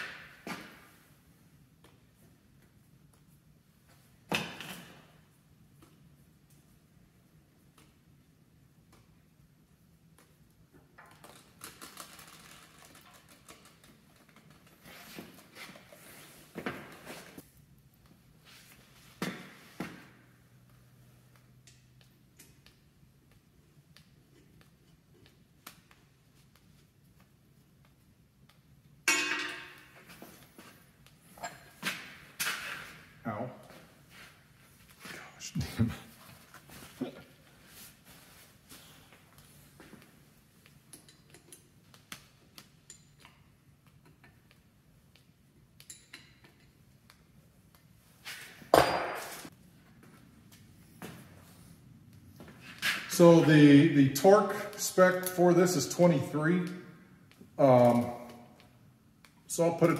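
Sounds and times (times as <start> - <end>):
light metallic clicks and clinks: 40.9 - 41.7, 42.6 - 44.4, 45.8 - 46.8.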